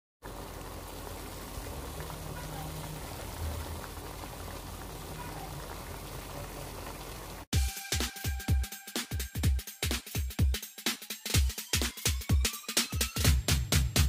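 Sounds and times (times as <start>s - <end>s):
stew bubbling and hissing: 0.2s - 7.5s.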